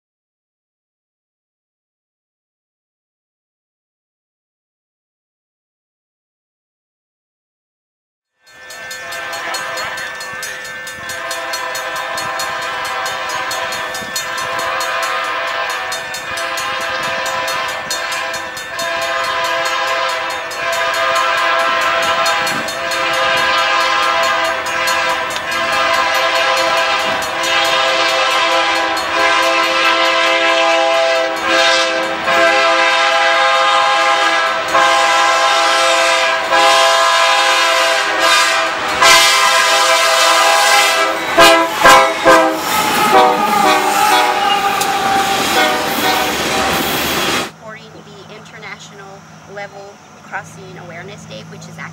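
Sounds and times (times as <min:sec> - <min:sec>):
locomotive air horn blasts: 0:11.0 - 0:47.5.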